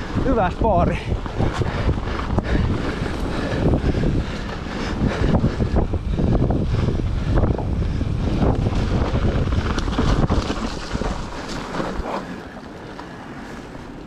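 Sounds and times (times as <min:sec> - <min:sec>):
bike tyre rumble and rattle: 0:00.0 - 0:14.0
wind buffeting microphone: 0:00.0 - 0:14.0.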